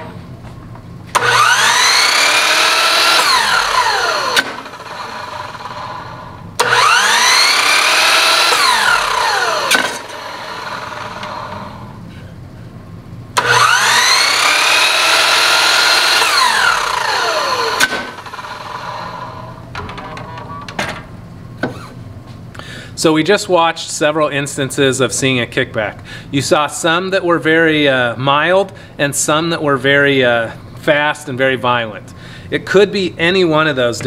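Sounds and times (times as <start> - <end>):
miter saw whine: 1.2 - 12.0, 13.4 - 19.6
saw blade knocking into board: 9.7 - 10.0, 17.8 - 18.2.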